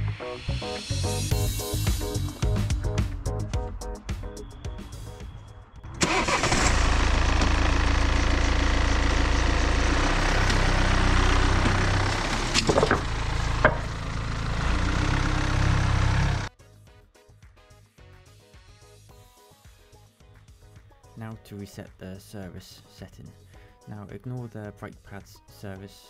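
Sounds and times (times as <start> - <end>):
car engine starting and running: 5.8 - 16.5.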